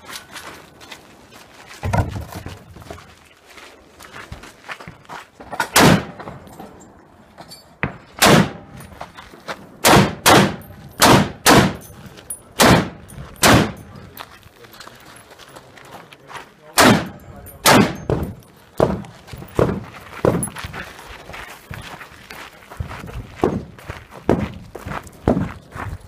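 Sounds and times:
loud gunshots: 0:05.7 - 0:06.2, 0:08.2 - 0:08.7, 0:09.8 - 0:11.8, 0:12.6 - 0:13.8, 0:16.8 - 0:18.2.

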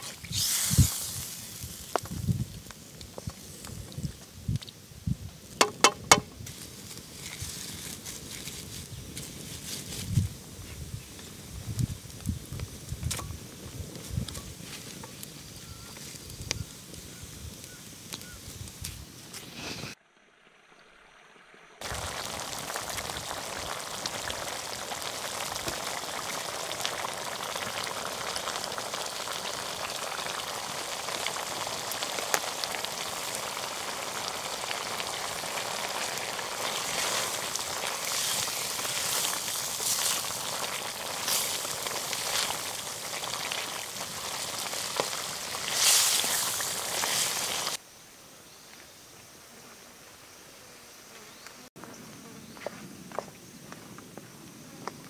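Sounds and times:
curry bubbling and sizzling: 0:21.8 - 0:47.8.

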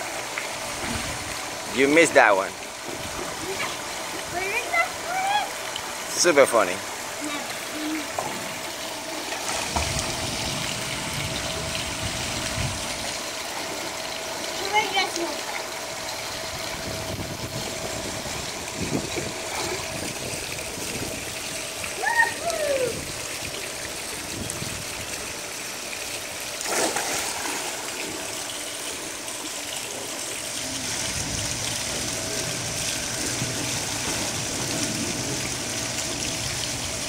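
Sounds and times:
pool water trickling and lapping: 0:00.0 - 0:37.0
child calling: 0:04.4 - 0:05.6, 0:07.2 - 0:08.2, 0:22.0 - 0:23.0
splashing while swimming: 0:24.8 - 0:36.9
child jumping into water splash: 0:26.6 - 0:27.9.

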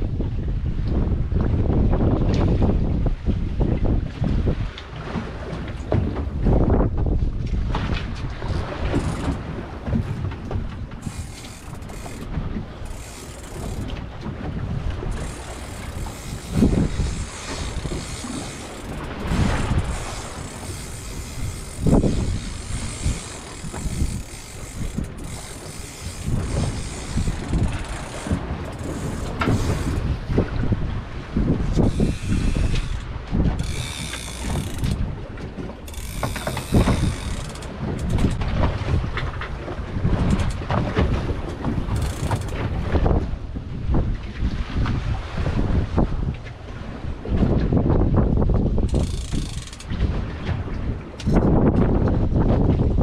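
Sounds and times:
water splashing at boat stern: 0:00.0 - 0:53.0
wind buffeting microphone: 0:00.0 - 0:53.0
fishing reel clicking: 0:08.9 - 0:09.4, 0:11.0 - 0:14.0, 0:15.1 - 0:30.1, 0:31.7 - 0:35.0, 0:35.8 - 0:38.4, 0:41.8 - 0:42.6, 0:48.8 - 0:49.9.

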